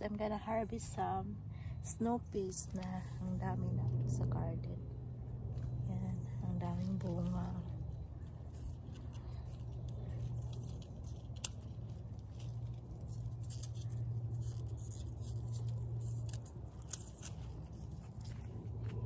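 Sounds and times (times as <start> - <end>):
steady low hum: 0.0 - 19.0
vines rustling and crackling: 6.7 - 19.0.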